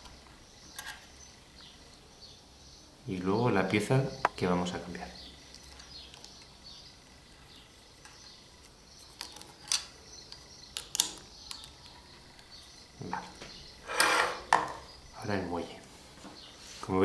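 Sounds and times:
small plastic parts clicking: 9.0 - 12.5.

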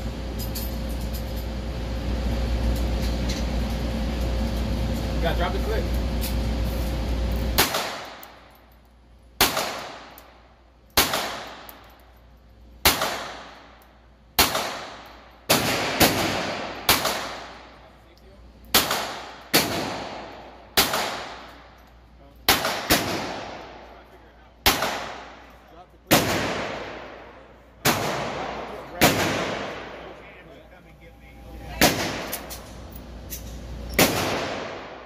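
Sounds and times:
pistol shots echoing: 7.6 - 8.3, 9.4 - 10.2, 11.0 - 11.8, 12.8 - 13.7, 14.4 - 17.6, 18.8 - 21.6, 22.5 - 23.9, 24.6 - 25.4, 26.1 - 30.2, 31.8 - 32.5, 34.0 - 35.0.

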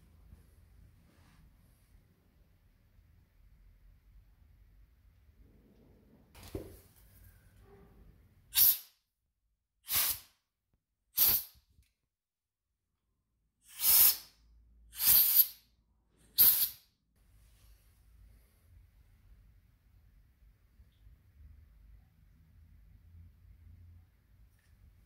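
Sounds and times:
air blow gun hissing blasts: 9.9 - 10.3, 11.2 - 11.5.

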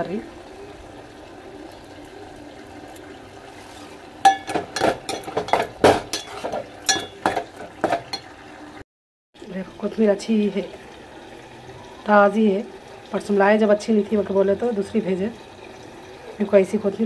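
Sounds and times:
pot bubbling: 0.0 - 8.8, 9.4 - 17.0
metal spoon scraping pot: 3.5 - 8.3.

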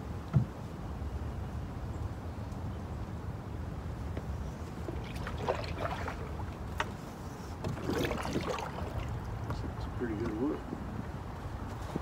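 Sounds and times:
oars splashing and dripping: 4.4 - 10.6.

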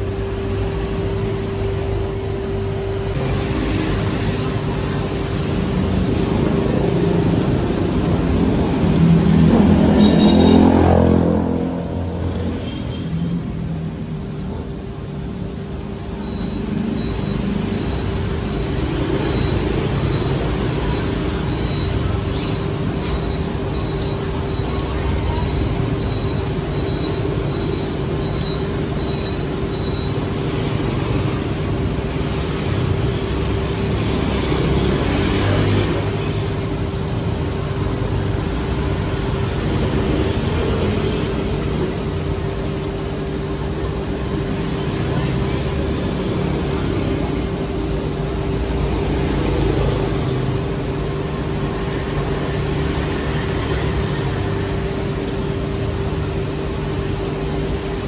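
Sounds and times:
steady mechanical hum: 0.0 - 58.0
street traffic: 0.0 - 58.0.

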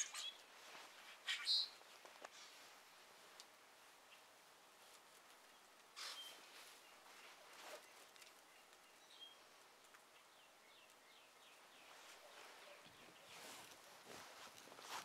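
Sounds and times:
songbird calls: 1.1 - 1.8, 6.0 - 9.5, 10.1 - 13.7.

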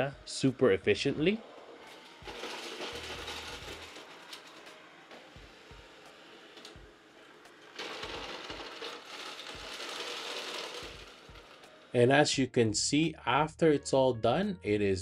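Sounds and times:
robot vacuum whirring hiss: 1.8 - 11.9.

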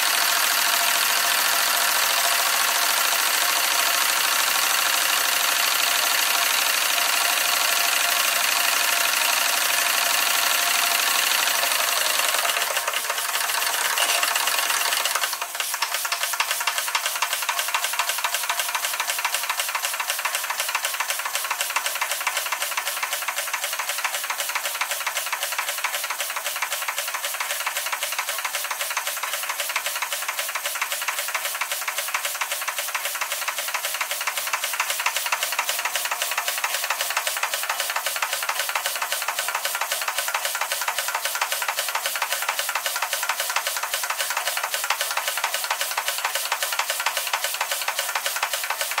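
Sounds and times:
steam engine exhaust chuffs: 0.0 - 49.0
steam hiss: 0.0 - 49.0.

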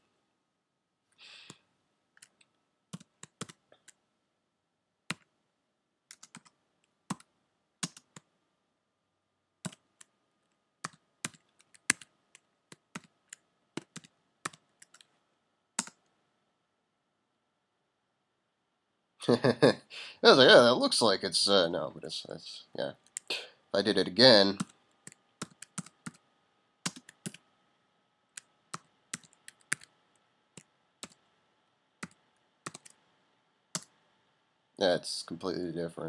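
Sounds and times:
keyboard typing: 2.2 - 4.0, 6.1 - 8.3, 9.6 - 10.1, 10.8 - 15.1, 15.8 - 16.1, 24.6 - 26.2, 26.8 - 27.4, 28.4 - 31.3, 32.0 - 33.0, 33.7 - 34.0.

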